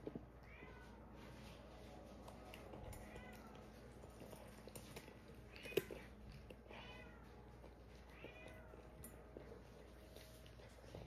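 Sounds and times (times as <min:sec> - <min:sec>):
cat meowing softly: 0:06.7 - 0:07.4.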